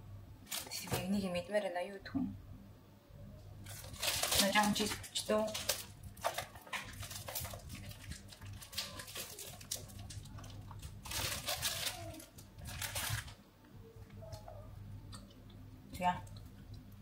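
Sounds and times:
plastic wrapper crinkling: 0.5s - 1.0s, 3.6s - 13.4s.

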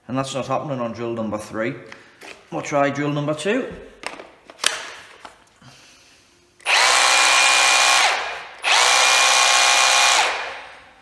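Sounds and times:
drill motor whining: 6.6s - 10.8s.

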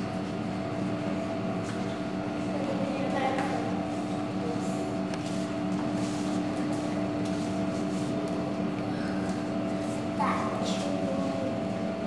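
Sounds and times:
steady tonal hum: 0.0s - 12.0s.

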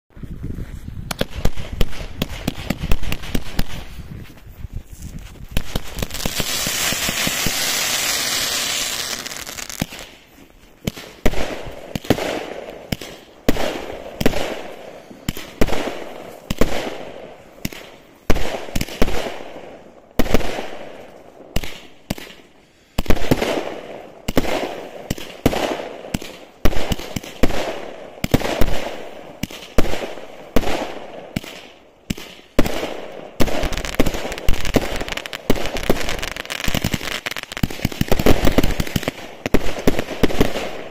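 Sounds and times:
firework bangs: 1.1s - 4.1s, 5.4s - 19.5s, 23.0s - 40.9s
firework hissing as it rises: 6.0s - 9.8s.

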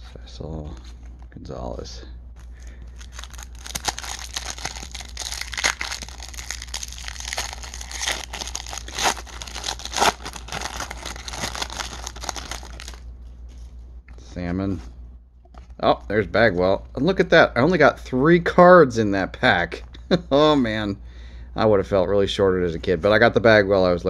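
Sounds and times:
foil wrapper tearing and crinkling: 2.6s - 13.0s.

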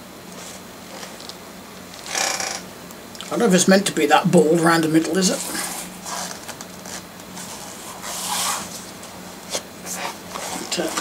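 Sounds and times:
hands scuffing bicycle tyre: 5.3s - 11.0s.

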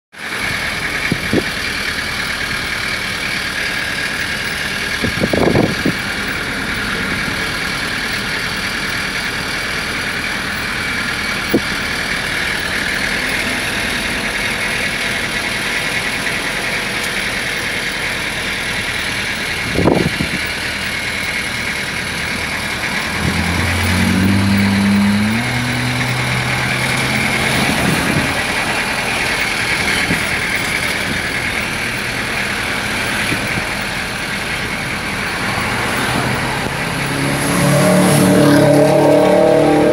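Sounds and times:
vehicle engine and road noise: 0.1s - 39.9s
deeper engine note rising: 21.6s - 39.9s.

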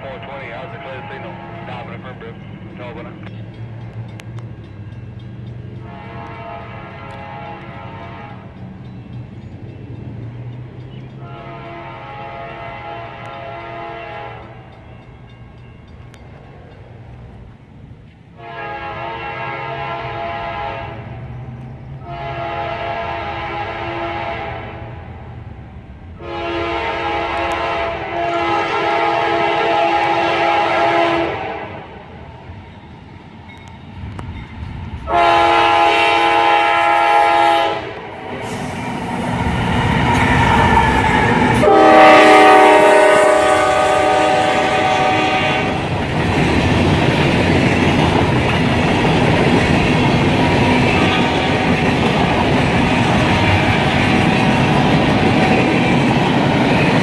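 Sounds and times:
train horn blasts: 0.0s - 2.4s, 5.8s - 8.7s, 11.2s - 14.8s, 18.4s - 21.3s, 22.0s - 25.0s, 26.2s - 32.0s, 35.0s - 38.8s, 40.0s - 45.9s, 50.4s - 52.1s
locomotive engine: 0.0s - 57.0s
freight cars wheel and rail clatter: 2.0s - 12.2s, 13.1s - 18.4s, 32.1s - 35.1s, 37.9s - 57.0s.

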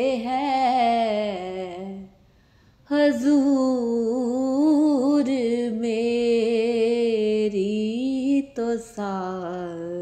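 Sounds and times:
woman singing unaccompanied: 0.0s - 2.1s, 2.9s - 10.0s
woman breathing in: 2.2s - 2.9s.

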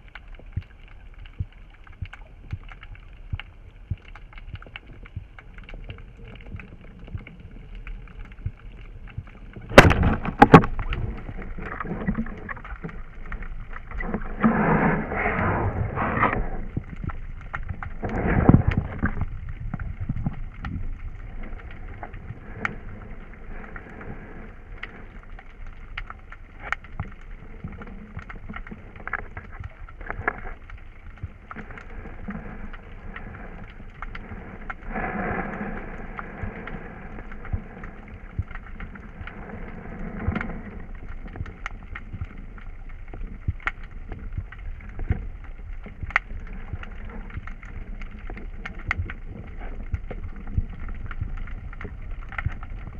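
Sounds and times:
muffled underwater rushing hiss: 9.0s - 25.4s, 31.3s - 43.4s
small clicks: 24.7s - 35.6s, 36.2s - 52.9s.

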